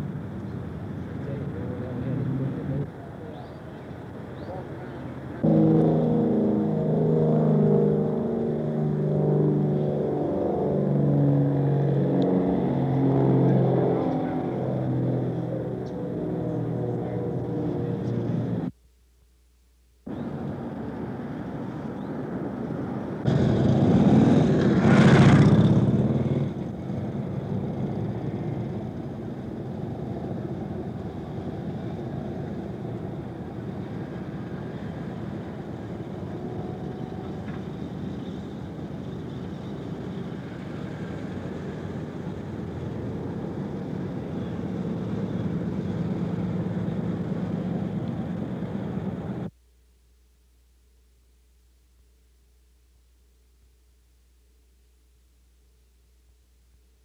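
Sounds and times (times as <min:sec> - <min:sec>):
rumble of motor traffic: 0:00.0 - 0:18.9, 0:20.0 - 0:49.6
vehicle passing close: 0:05.4 - 0:18.7, 0:20.1 - 0:49.5.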